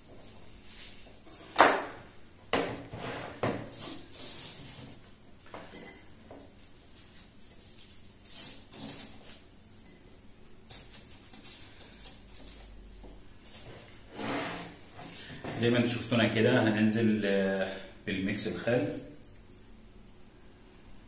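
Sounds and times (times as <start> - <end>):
knife scraping board: 2.9 - 5.0, 14.1 - 15.6.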